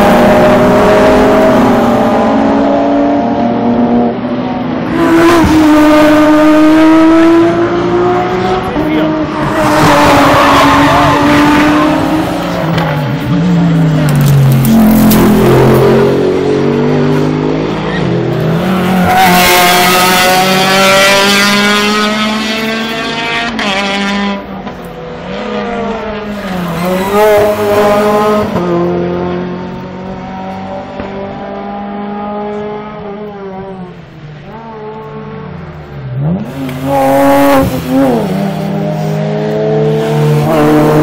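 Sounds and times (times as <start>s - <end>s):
race car engines passing: 0.0s - 41.0s.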